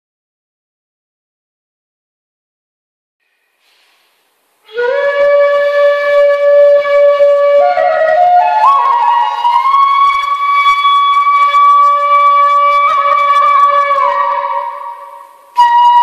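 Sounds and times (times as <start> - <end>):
solo flute: 4.6 - 16.0.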